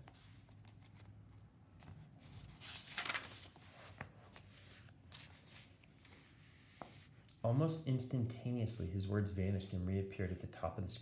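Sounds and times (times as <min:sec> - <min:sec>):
paper page turning: 0:00.0 - 0:06.2.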